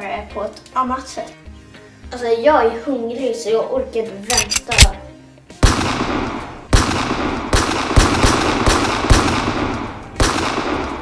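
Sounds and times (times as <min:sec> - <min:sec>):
gunshots: 0:05.6 - 0:11.0.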